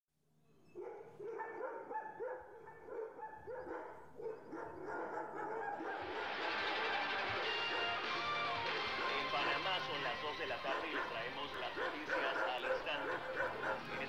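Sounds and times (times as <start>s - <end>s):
dog barking: 0.7s - 6.4s, 7.6s - 8.0s, 9.0s - 9.6s, 10.5s - 14.0s.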